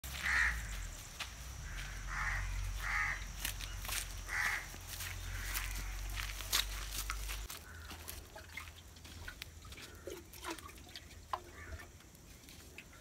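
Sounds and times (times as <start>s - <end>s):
crow cawing: 0.1s - 0.8s, 1.6s - 6.6s, 7.5s - 8.0s, 11.5s - 11.8s.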